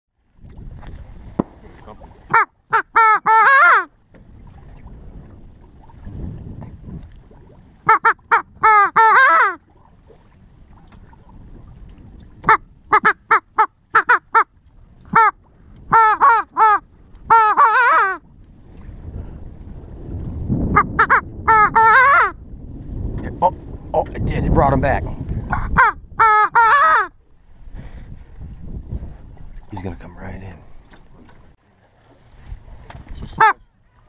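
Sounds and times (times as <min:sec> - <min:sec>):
duck call blown: 0:02.3 - 0:03.9, 0:07.8 - 0:09.6, 0:12.4 - 0:14.5, 0:15.1 - 0:18.2, 0:20.7 - 0:22.4, 0:25.5 - 0:27.1.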